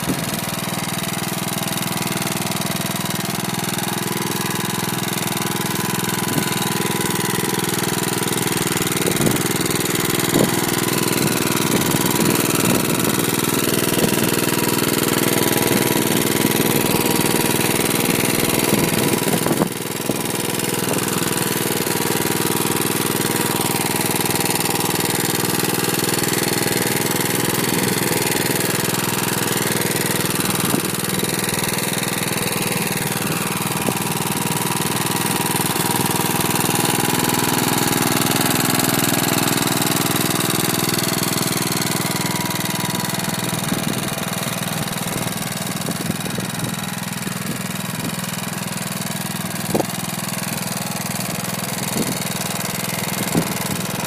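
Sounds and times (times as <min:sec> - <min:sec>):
tractor engine running under load: 0:00.0 - 0:54.0.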